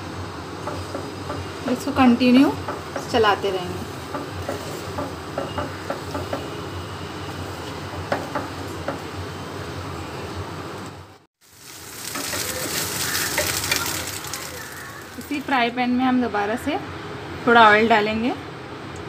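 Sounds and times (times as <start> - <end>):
eggs sizzling in oil: 11.4 - 15.8.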